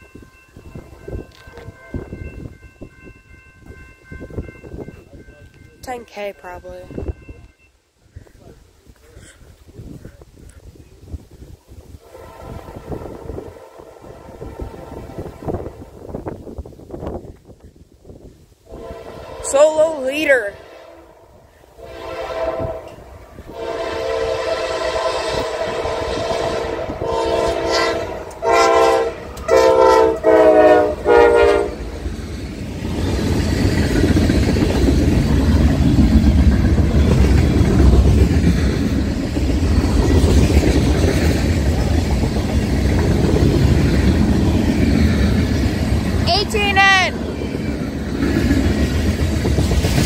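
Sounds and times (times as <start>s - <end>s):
locomotive air horn blasts: 12.0s - 16.0s, 18.7s - 19.8s, 20.4s - 31.8s
freight cars rumbling on rails: 22.1s - 50.0s.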